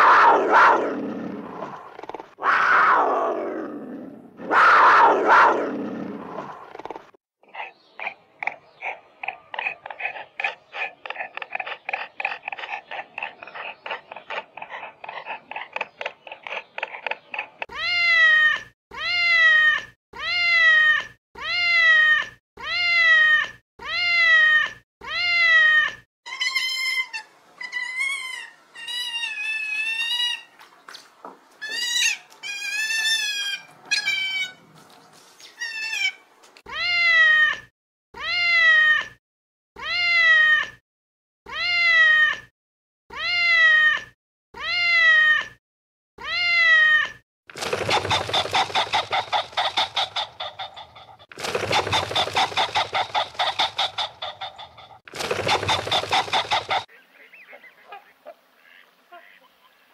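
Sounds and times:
cat meowing: 46.2s - 47.2s
cat chattering: 47.8s - 56.9s.

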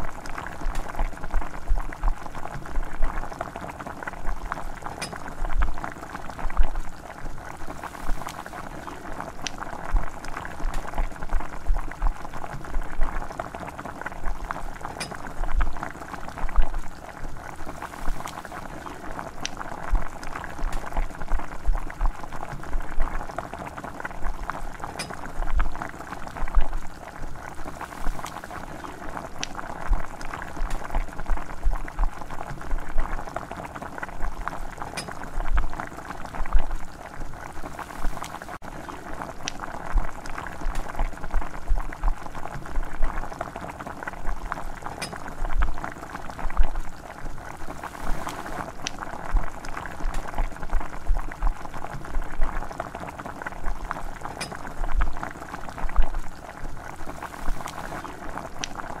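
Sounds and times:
broth bubbling in a frying pan: 0.0s - 59.0s.

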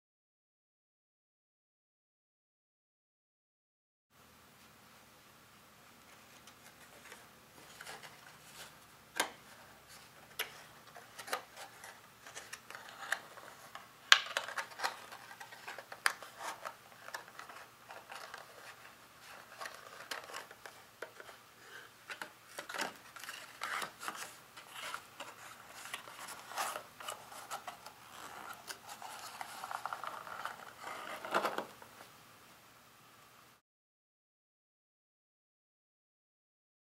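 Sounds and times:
card crinkling and creasing: 6.1s - 32.1s
card rubbing on card: 22.5s - 31.6s.

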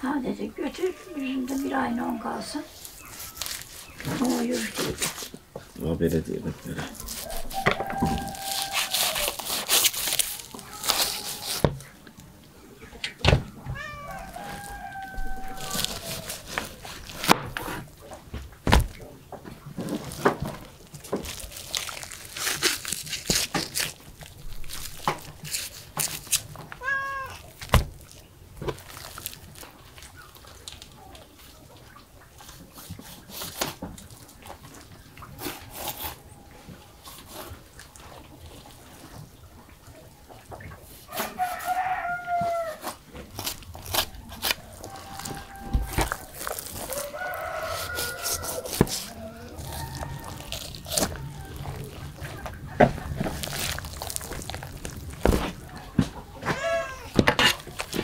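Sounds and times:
knife slicing raw meat: 6.8s - 11.8s, 14.0s - 17.8s, 41.2s - 51.6s
cat meowing: 13.6s - 16.1s, 26.7s - 27.6s, 56.4s - 57.2s.

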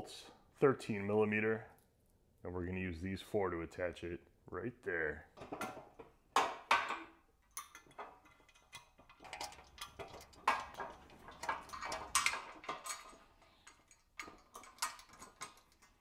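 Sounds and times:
metal clicks and knocks: 5.4s - 16.0s.

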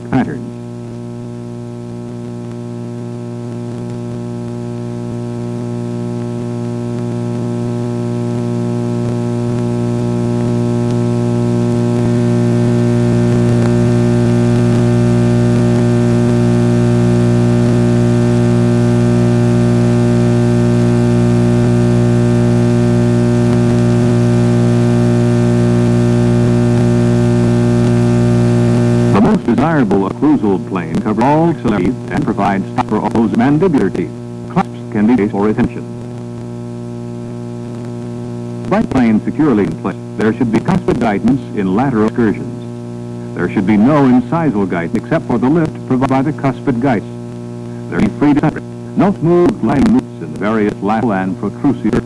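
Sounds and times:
electrical hum: 0.0s - 52.0s.

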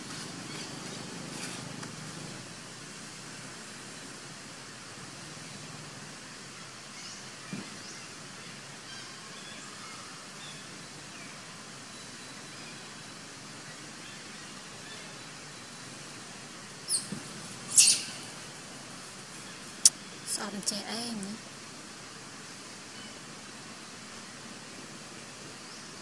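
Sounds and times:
outdoor hiss: 0.0s - 26.0s
bird chirps: 16.9s - 18.4s
high-pitched animal squeaks: 17.7s - 18.1s.

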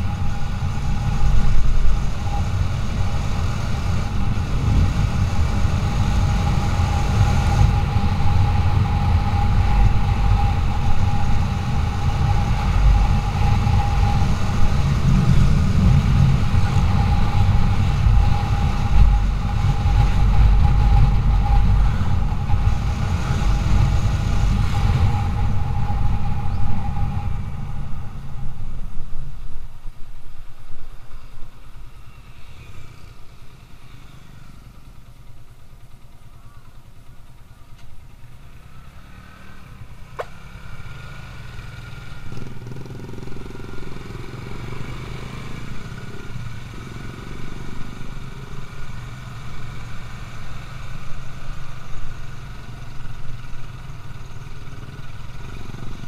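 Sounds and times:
motorcycle engine rumbling: 0.0s - 56.0s.

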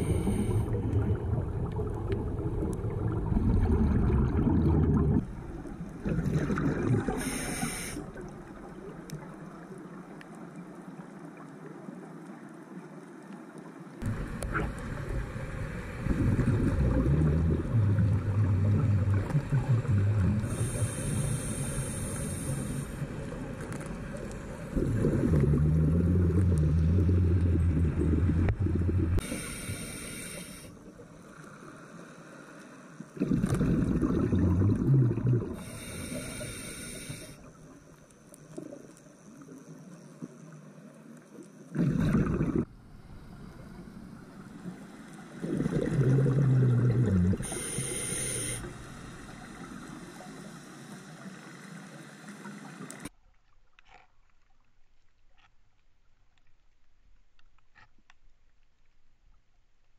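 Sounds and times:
regulator inhalation hiss: 0.0s - 0.8s, 7.2s - 8.2s, 20.4s - 23.1s, 29.2s - 30.7s, 35.6s - 37.5s, 47.4s - 52.1s
exhaled bubbles rumbling underwater: 0.0s - 11.0s, 14.0s - 30.2s, 33.2s - 37.8s, 41.6s - 51.4s.

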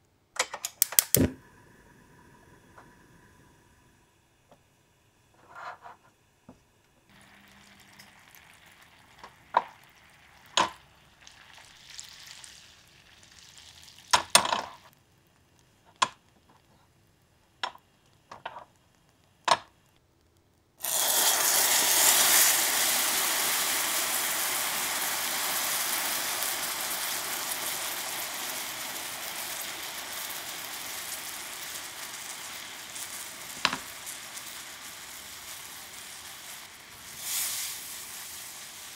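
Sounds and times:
caramel hissing sizzle: 1.1s - 38.9s.

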